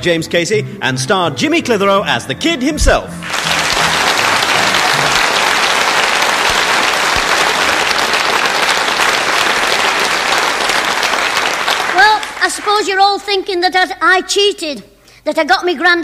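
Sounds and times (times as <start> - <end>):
audience applauding: 3.2 - 13.2.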